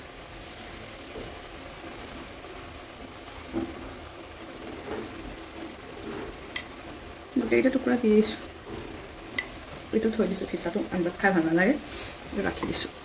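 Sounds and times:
curry bubbling: 0.0 - 13.0.

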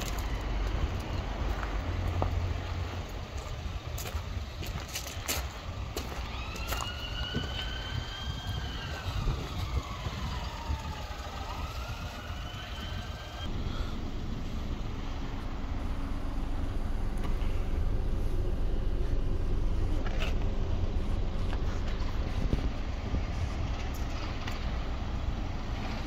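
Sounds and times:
traffic rumble: 0.0 - 26.0
siren wailing: 6.0 - 13.5.

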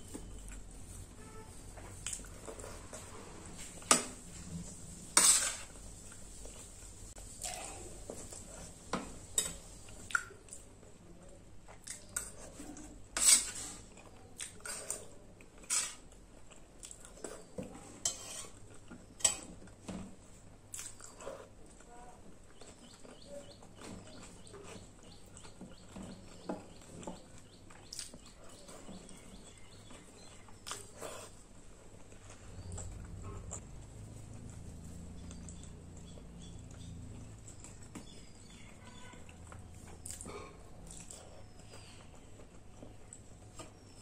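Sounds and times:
eating sounds: 11.6 - 19.8, 20.5 - 44.0.

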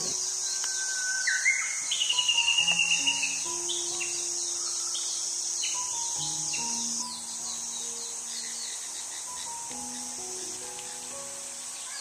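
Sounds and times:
birds chirping and whistling: 0.0 - 12.0
insects chorus: 0.0 - 12.0
rapid high bird trill: 0.0 - 12.0.

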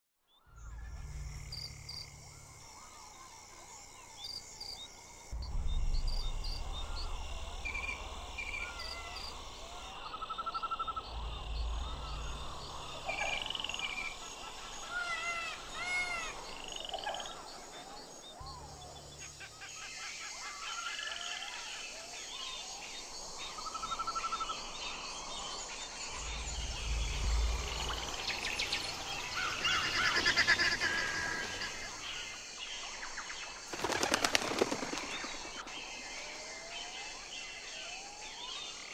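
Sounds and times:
low rumble: 5.2 - 14.8, 25.8 - 30.2.

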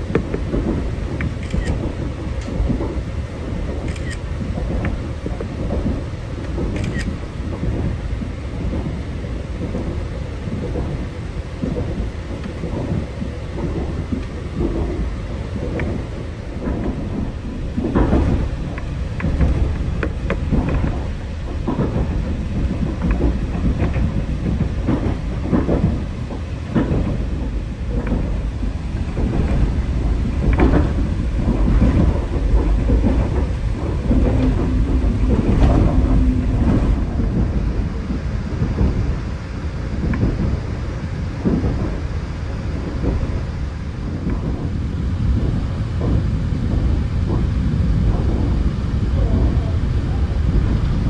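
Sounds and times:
coach knocking and rattling: 0.0 - 39.4
train wheels rumbling on rails: 0.0 - 51.0.

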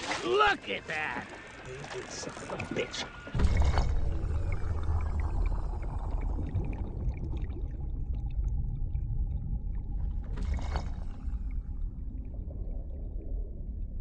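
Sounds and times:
water churning and gurgling: 0.0 - 14.0
deep underwater rumble: 3.2 - 14.0.

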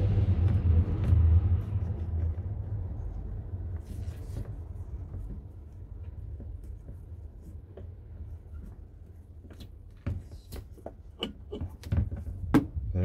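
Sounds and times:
steady low rumble: 0.0 - 8.5.

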